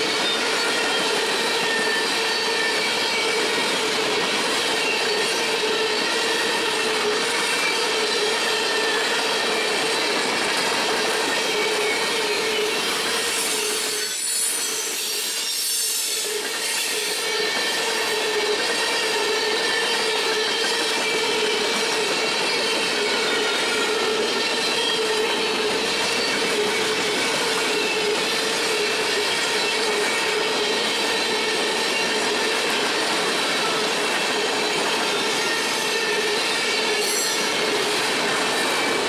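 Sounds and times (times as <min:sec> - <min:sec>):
freight train rolling past: 0:00.0 - 0:39.0
wheel squeal: 0:00.0 - 0:39.0.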